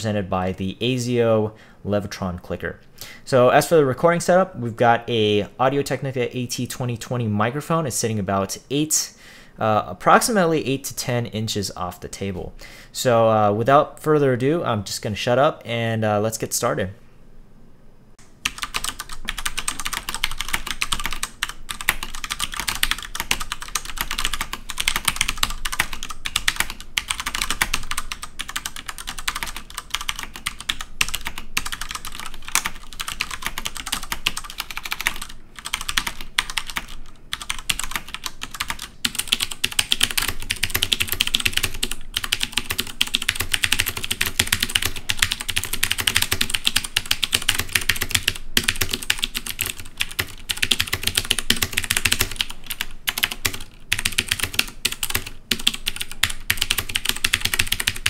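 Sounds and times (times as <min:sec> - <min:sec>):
mechanical keyboard typing: 0:18.4 - 0:58.0.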